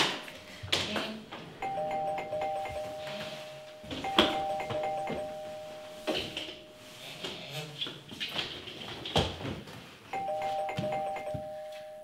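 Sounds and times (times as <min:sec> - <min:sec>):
doorbell two-tone chime: 0:01.6 - 0:06.9, 0:10.1 - 0:12.0.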